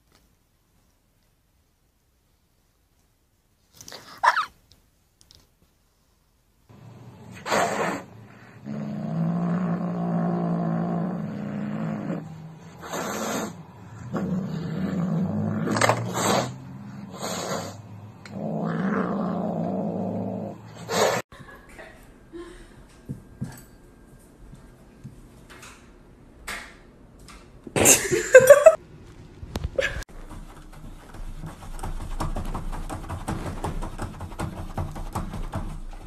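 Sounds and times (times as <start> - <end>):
kitten growling: 7.1 - 21.2
kitten hissing: 7.3 - 8.6, 12.7 - 13.6, 15.9 - 17.9, 20.8 - 21.2.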